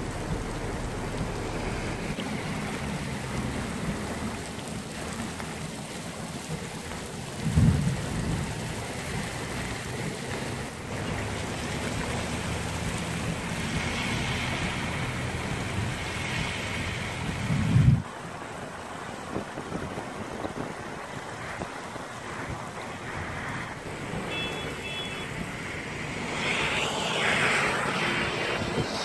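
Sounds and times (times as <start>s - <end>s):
low rumbles: 0.0s - 18.1s
flood water rushing: 0.0s - 29.0s.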